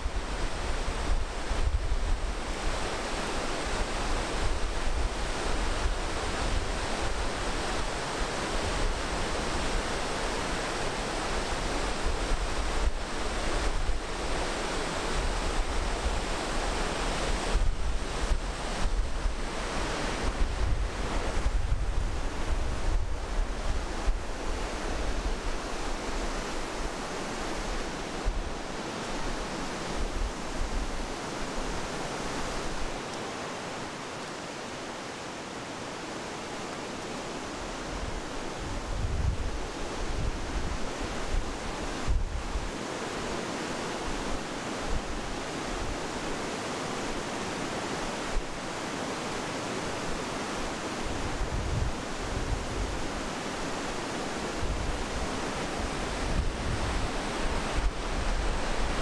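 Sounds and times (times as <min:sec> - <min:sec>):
river rushing through rapids: 0:00.0 - 0:59.0
wind buffeting microphone: 0:11.0 - 0:33.0, 0:37.6 - 0:42.8, 0:51.0 - 0:53.8, 0:54.4 - 0:59.0.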